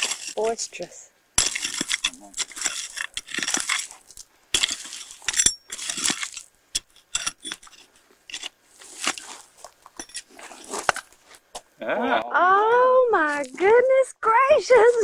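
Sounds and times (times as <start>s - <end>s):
small stones clinking: 0.0s - 0.7s, 1.4s - 11.2s
digging tool scraping stony ground: 0.0s - 0.8s, 1.4s - 11.4s.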